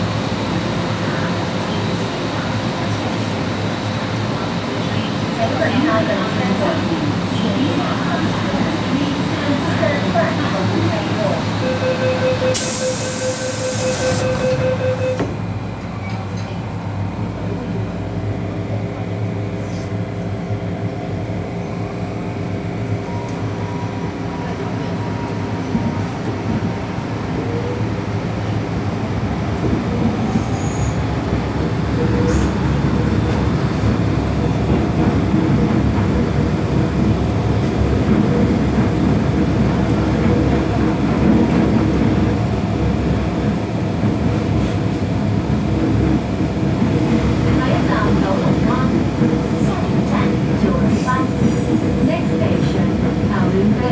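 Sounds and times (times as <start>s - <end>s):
train motor tones: 11.5s - 15.4s
wheel and track rumble: 14.3s - 53.9s.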